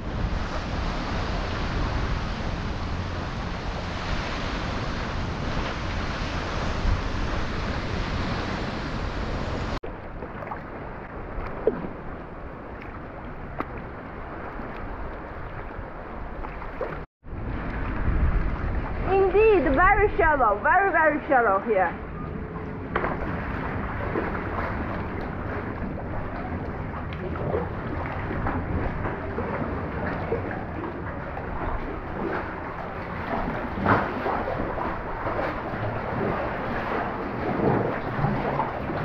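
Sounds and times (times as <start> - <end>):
water lapping: 0.0 - 39.0
wind on microphone: 0.0 - 39.0
water drips and splashes: 9.8 - 20.1, 22.9 - 39.0
water sloshing around paddle: 9.9 - 17.1, 22.2 - 39.0.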